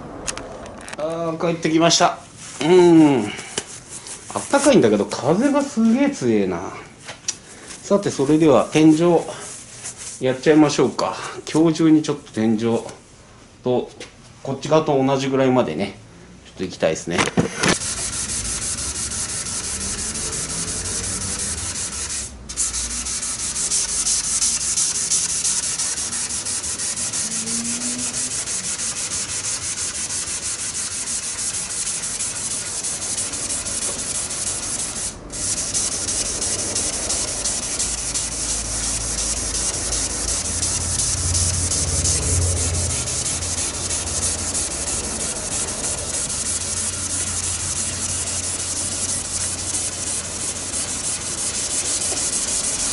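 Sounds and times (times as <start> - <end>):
sanding scraping on metal: 3.7 - 6.0, 17.8 - 52.9
low hum: 17.8 - 24.1, 36.1 - 48.6.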